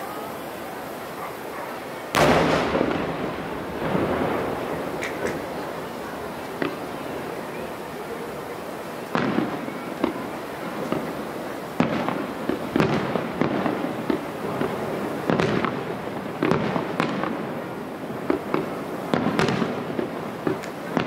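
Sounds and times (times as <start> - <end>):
rolling echo: 0.3 - 21.0
firework shells bursting: 0.4 - 7.9.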